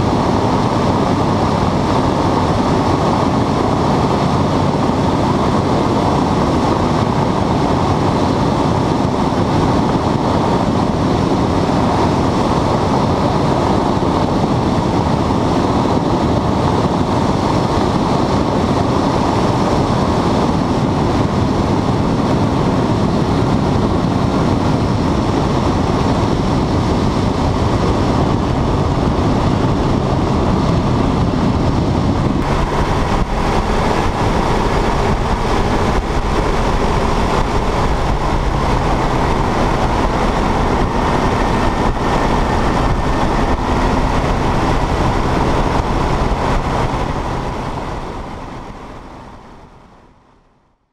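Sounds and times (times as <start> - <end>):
wind noise: 0.0 - 50.3
propeller aircraft engine: 0.0 - 50.9
wheels rolling on grass: 32.4 - 49.0.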